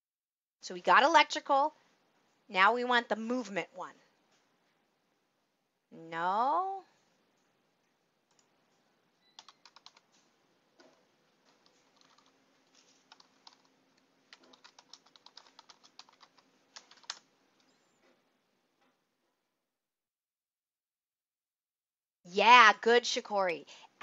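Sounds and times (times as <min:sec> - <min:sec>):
faint keyboard typing: 0:07.4 - 0:18.2.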